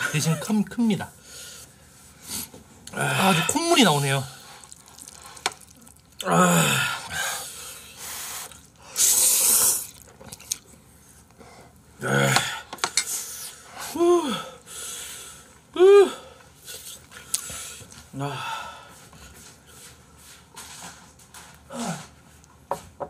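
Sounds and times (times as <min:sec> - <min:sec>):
men gasping: 0:06.2 - 0:07.8
hissing breath: 0:06.6 - 0:09.9.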